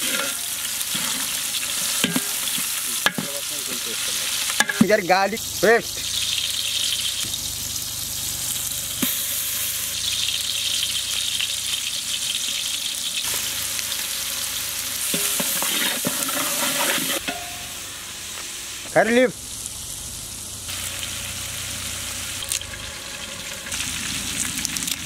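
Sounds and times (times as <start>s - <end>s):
spoon scraping metal pot: 0.0s - 3.3s, 15.1s - 17.4s
vegetables sizzling in oil: 0.0s - 25.0s.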